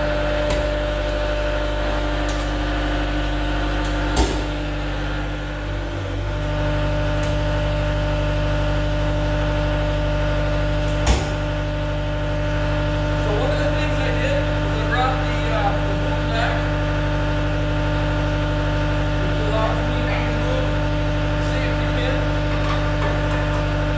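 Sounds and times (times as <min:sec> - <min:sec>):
diesel engine idling: 0:00.0 - 0:23.9.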